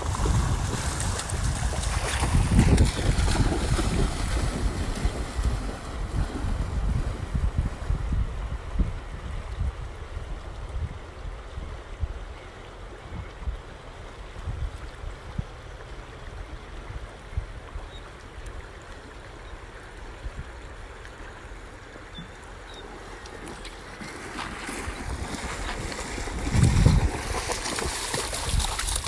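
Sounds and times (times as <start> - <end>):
dog splashing in water: 0.0 - 6.6, 23.3 - 29.0
river water lapping on rocky shore: 0.0 - 6.9, 20.8 - 29.0
wind buffeting microphone: 0.0 - 12.3, 24.4 - 29.0.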